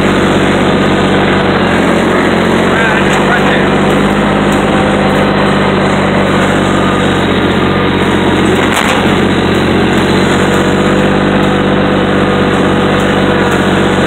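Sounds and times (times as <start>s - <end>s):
diesel engine droning: 0.0s - 14.0s.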